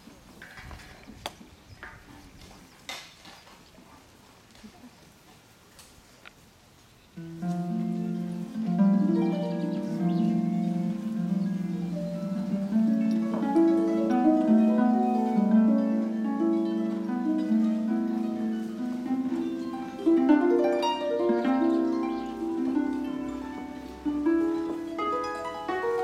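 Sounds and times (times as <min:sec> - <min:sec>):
harp plucked notes: 0:07.2 - 0:26.0.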